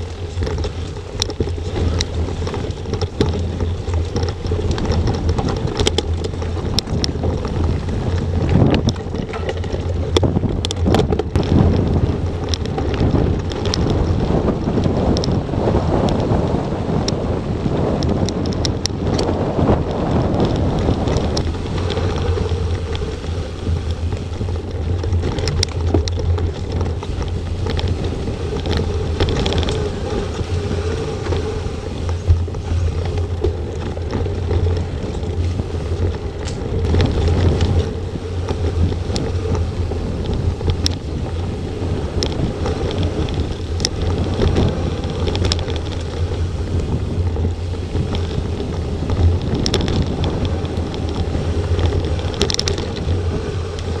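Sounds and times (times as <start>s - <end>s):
bike clicks and rattles: 0.0s - 54.0s
tyres rolling on dirt: 0.0s - 54.0s
wind rumbling on microphone: 0.0s - 54.0s.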